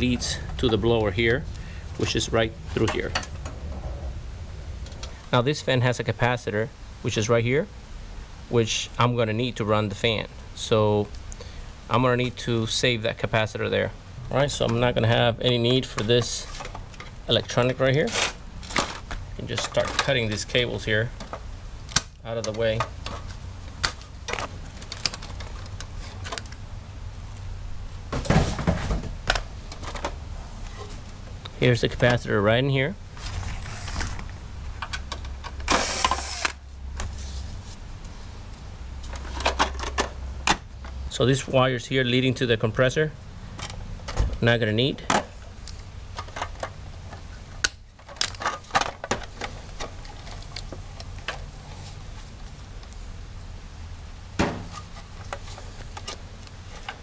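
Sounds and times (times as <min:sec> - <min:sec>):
clicks and knocks of metal parts: 0:15.9 - 0:20.6, 0:46.1 - 0:51.5.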